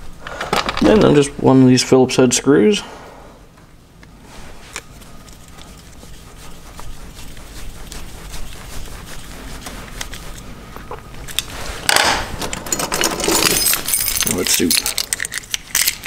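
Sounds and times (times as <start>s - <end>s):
small metal parts clicking: 12.5s - 16.0s.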